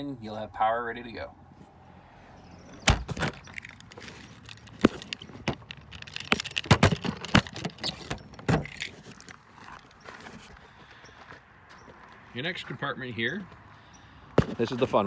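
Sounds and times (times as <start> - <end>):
key ring jangling: 3.4 - 8.9.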